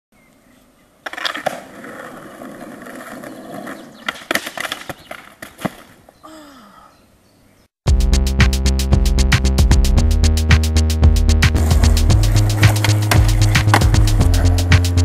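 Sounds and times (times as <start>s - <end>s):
skateboard rolling on asphalt: 0.9s - 6.2s, 11.6s - 15.0s
skateboard clacking: 1.0s - 6.0s, 11.6s - 15.0s
fall onto asphalt: 1.0s - 6.1s
skateboard tail pop: 11.6s - 14.8s.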